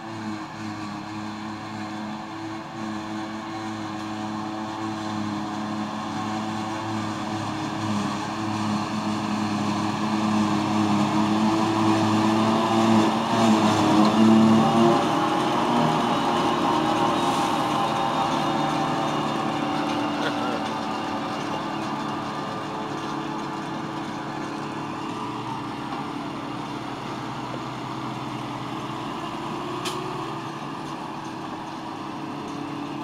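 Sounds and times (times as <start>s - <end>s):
tractor engine: 0.0s - 33.0s
forage harvester chopping grass: 3.4s - 26.4s.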